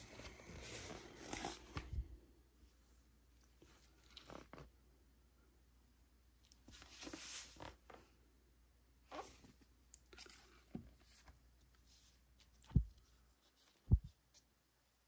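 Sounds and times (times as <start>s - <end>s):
record sleeves rustling and clicking: 0.0s - 2.0s.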